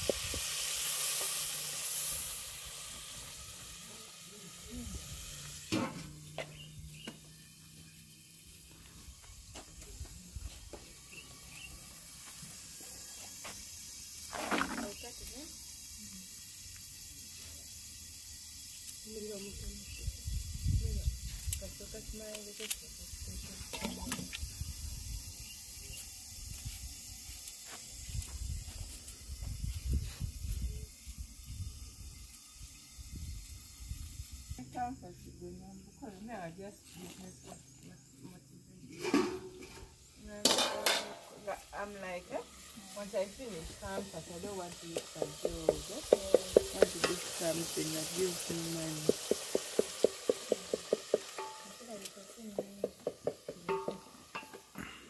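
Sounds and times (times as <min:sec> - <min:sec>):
faint steady hiss: 0:00.0 - 0:55.0
wind on microphone: 0:20.0 - 0:21.6, 0:28.1 - 0:32.2.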